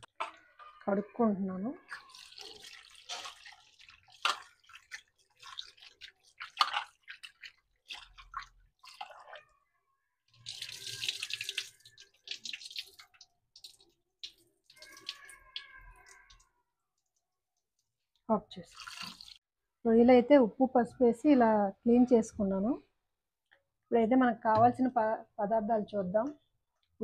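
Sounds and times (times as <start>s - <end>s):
water splashing in steel bowl: 1.8s - 9.6s, 10.3s - 16.5s, 18.6s - 19.4s
running tap water: 1.9s - 9.5s, 10.3s - 16.4s, 18.6s - 19.4s.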